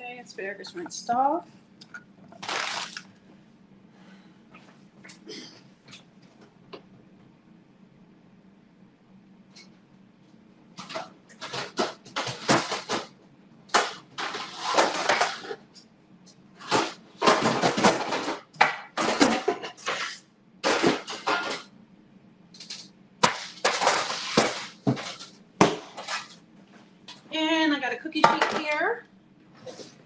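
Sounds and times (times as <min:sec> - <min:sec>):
dishes and utensils clattering: 0:16.6 - 0:21.7.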